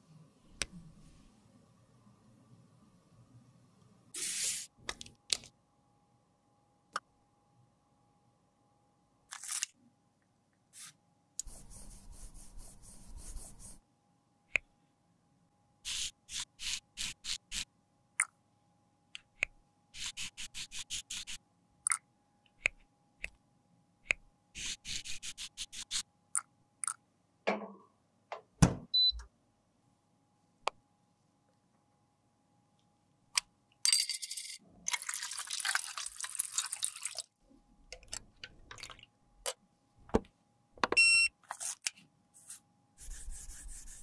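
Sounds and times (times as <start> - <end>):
scratchy strokes on makeup powder: 10.8 - 13.8, 20.0 - 21.4, 24.6 - 26.0, 42.4 - 44.0.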